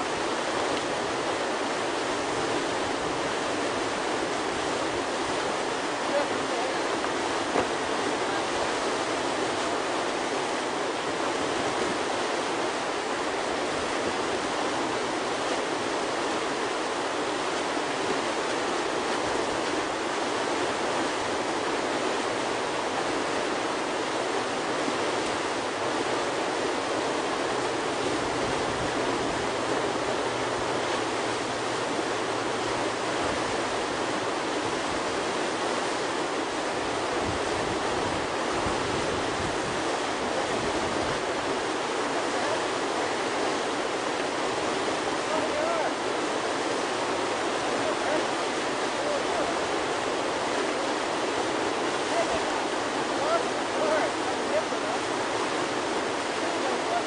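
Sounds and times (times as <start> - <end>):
whitewater rushing: 0.0 - 57.0.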